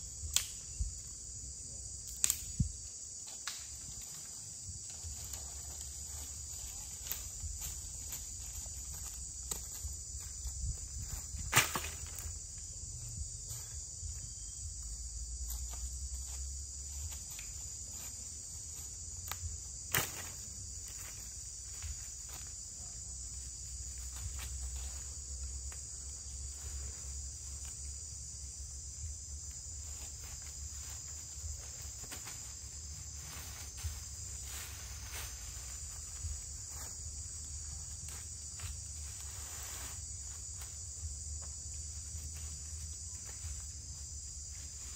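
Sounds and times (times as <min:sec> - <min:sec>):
insects chirring: 0:00.0 - 0:44.9
footsteps on dry leaves: 0:04.3 - 0:14.8, 0:29.2 - 0:44.9.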